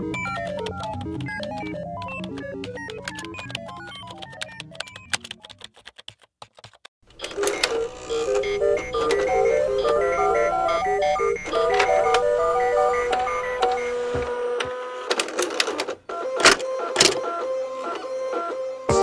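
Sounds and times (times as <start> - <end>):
clicks: 7.1 - 17.3
electronic music: 7.2 - 14.0, 16.6 - 19.0
synthesizer bleeps: 7.2 - 14.2.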